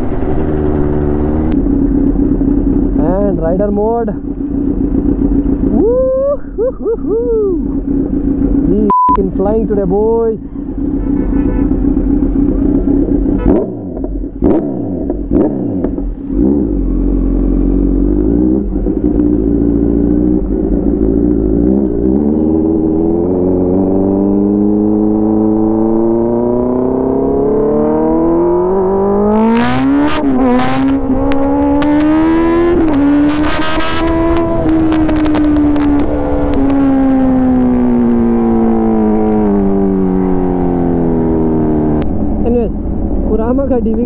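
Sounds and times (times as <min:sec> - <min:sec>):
motorcycle engine revving hard: 0:00.0 - 0:01.6, 0:10.9 - 0:42.3.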